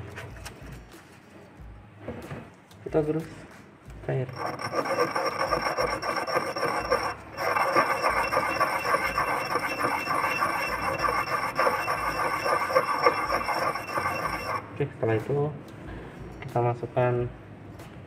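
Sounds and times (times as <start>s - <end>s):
pestle grinding in mortar: 4.3s - 14.7s.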